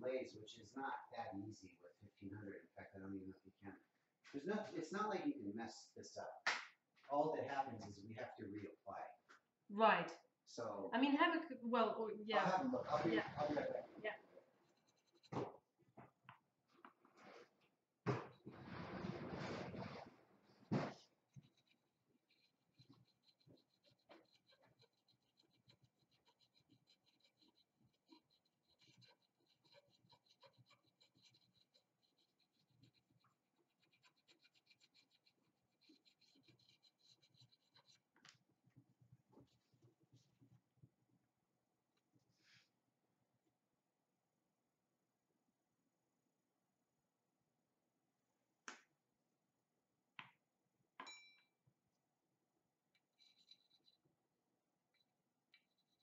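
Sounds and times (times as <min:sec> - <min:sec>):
sanding stone scratching porcelain: 0:21.4 - 0:38.0
ringing clink: 0:51.0 - 0:51.5.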